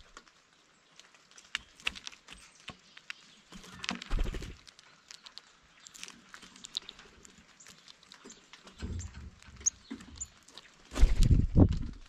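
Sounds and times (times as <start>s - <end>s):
birds pecking at seed: 0.0s - 12.0s.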